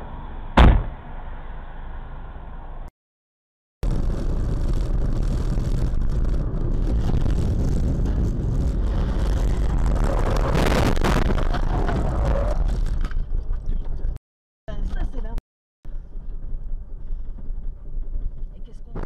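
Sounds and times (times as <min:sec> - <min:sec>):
car road and wind noise: 0:00.0 - 0:02.9, 0:03.8 - 0:19.0
harsh crash noise: 0:03.8 - 0:13.0.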